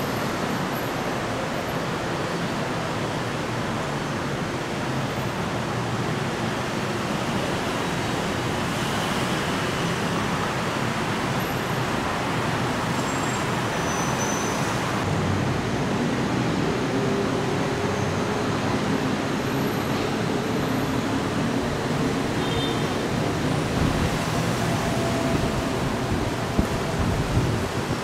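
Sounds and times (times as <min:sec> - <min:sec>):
rumble of vehicles: 0:00.0 - 0:28.0.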